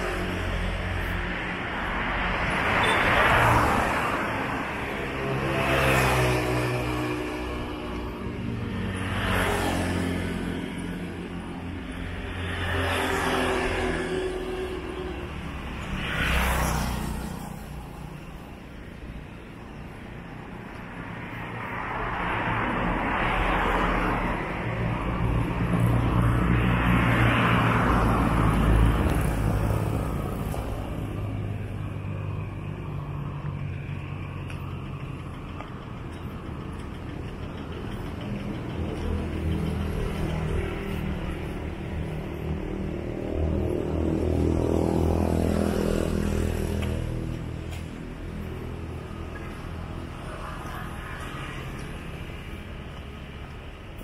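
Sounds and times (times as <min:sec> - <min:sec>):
vehicles passing: 0:00.0 - 0:54.0
steady engine hum: 0:16.8 - 0:54.0.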